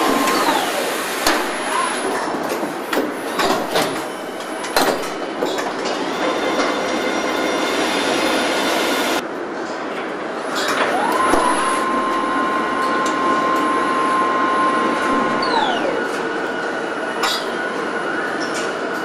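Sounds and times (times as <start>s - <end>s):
industrial machinery running: 0.0s - 19.0s
electric drive whine: 10.8s - 18.8s.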